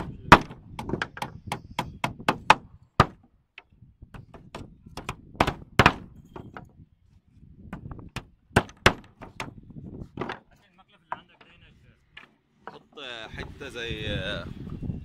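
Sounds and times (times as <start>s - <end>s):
hammer driving nails into wood: 0.0s - 6.7s, 7.7s - 9.6s.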